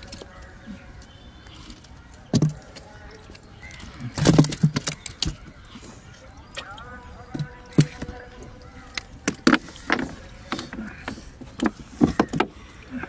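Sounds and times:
fish thumping on wooden boat: 2.2s - 2.9s, 4.1s - 5.6s, 6.5s - 12.6s.

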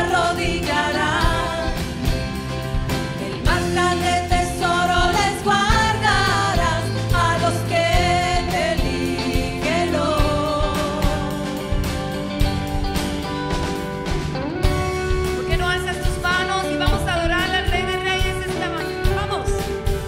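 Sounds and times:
woman singing with vibrato: 0.0s - 11.9s
live band with drum beat: 0.0s - 20.0s.

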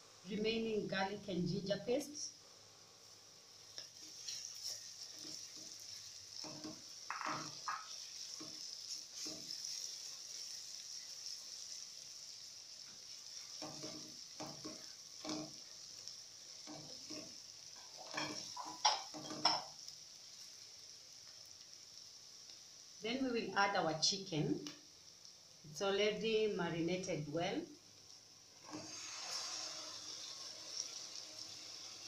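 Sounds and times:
vegetables sizzling in oil: 0.0s - 32.0s
spatula scraping a pot: 4.1s - 9.8s, 28.7s - 32.0s.

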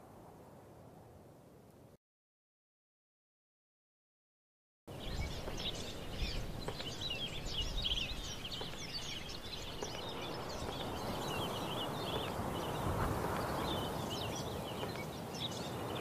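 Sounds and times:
outdoor background hiss: 0.0s - 2.0s, 4.9s - 16.0s
small birds chirping: 4.9s - 16.0s.

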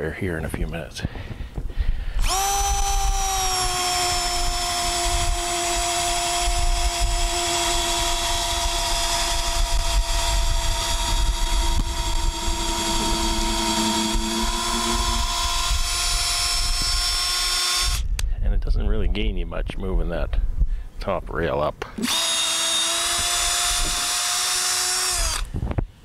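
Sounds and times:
electric drill boring into wood: 2.2s - 18.2s, 22.0s - 25.6s.

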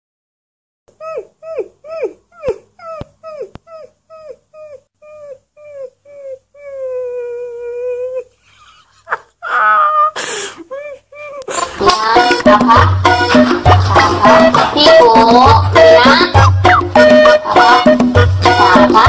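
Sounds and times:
puppy yipping and howling: 1.0s - 8.3s.

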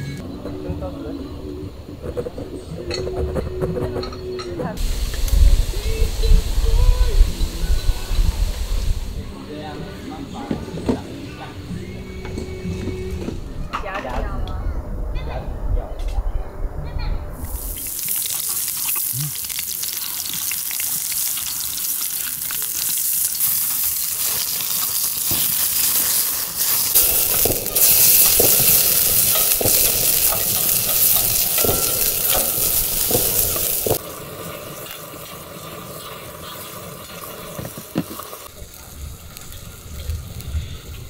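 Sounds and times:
wood fire crackling: 4.8s - 9.4s, 17.4s - 41.0s
steak sizzling in a hot pan: 17.5s - 41.0s.

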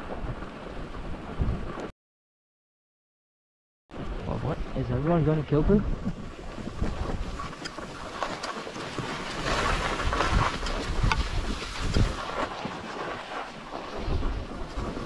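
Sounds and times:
wind buffeting microphone: 0.0s - 1.9s, 3.9s - 15.0s
skis scraping over snow: 4.3s - 15.0s.

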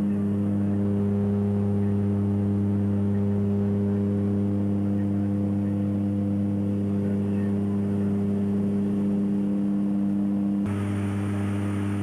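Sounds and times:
propeller aircraft engine droning: 0.0s - 12.0s.

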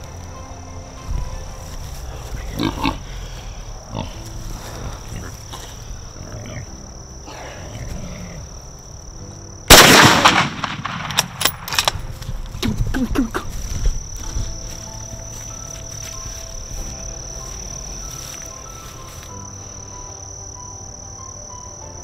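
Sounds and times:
loud rifle shot: 9.7s - 11.9s
sharp clicks: 9.8s - 12.1s.

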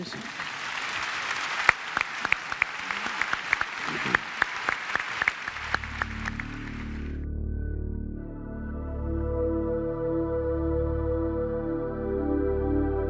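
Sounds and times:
audience applauding: 0.0s - 7.2s
soft ambient music: 5.6s - 13.0s.

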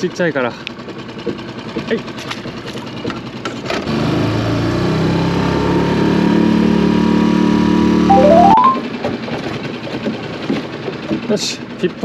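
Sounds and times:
outboard motor running: 0.8s - 3.4s
rising run of short tones: 8.1s - 8.8s.

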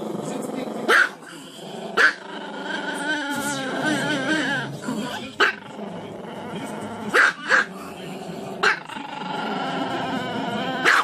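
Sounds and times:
dog barking: 0.9s - 1.2s, 2.0s - 2.2s, 5.4s - 5.6s, 7.1s - 7.7s, 8.6s - 8.8s.

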